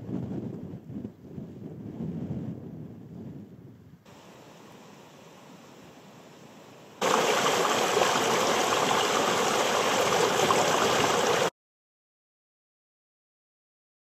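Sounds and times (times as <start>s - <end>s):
faint even hiss: 4.1s - 8.4s
river water rushing over boulder: 7.0s - 11.5s.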